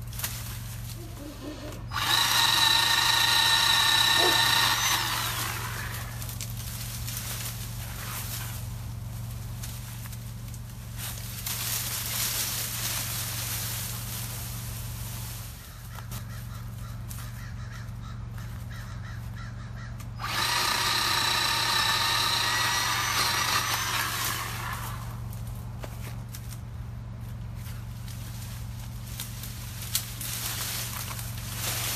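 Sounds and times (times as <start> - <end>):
branches rustling: 0.0 - 31.9
electric chainsaw cutting: 1.4 - 8.6, 20.2 - 25.5.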